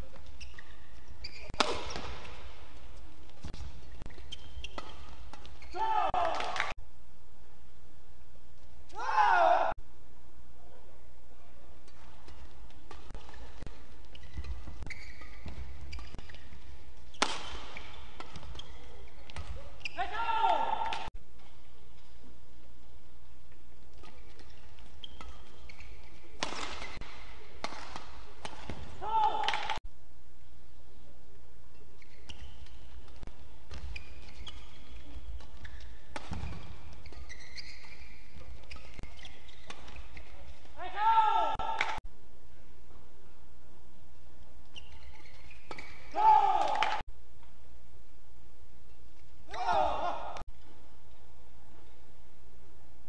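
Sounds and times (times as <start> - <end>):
shoes squeaking on court floor: 0.0 - 6.7, 11.9 - 22.2, 23.9 - 29.8, 31.7 - 40.8, 44.6 - 46.2
rackets striking shuttlecock: 1.4 - 2.6, 3.4 - 6.7, 11.9 - 19.7, 23.9 - 29.8.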